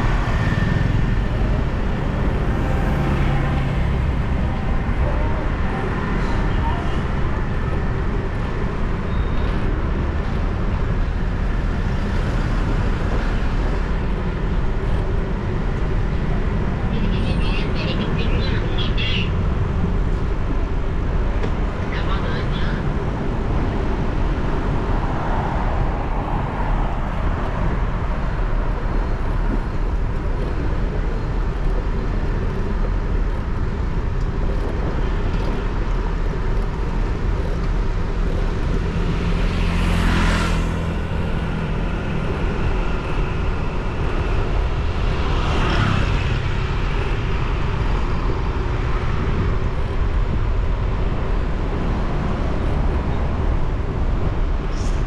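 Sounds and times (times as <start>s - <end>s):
motorcycle engine and road rumble: 22.6s - 55.0s.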